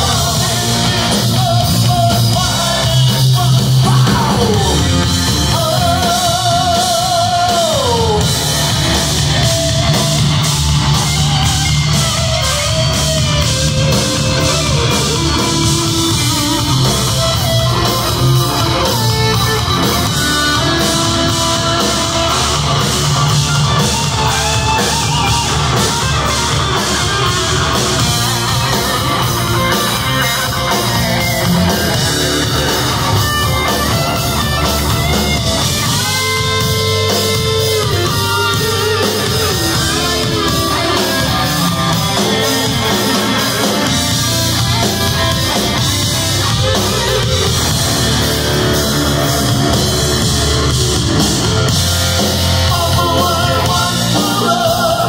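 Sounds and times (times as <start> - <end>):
heavy metal band playing: 0.0 - 55.0.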